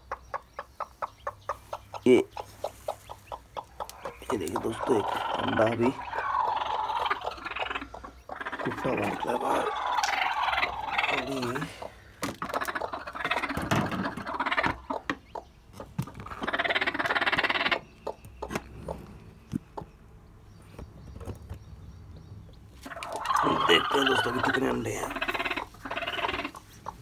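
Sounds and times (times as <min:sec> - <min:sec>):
hen grumbling calls: 0:03.8 - 0:15.1, 0:16.2 - 0:19.2, 0:22.8 - 0:27.0.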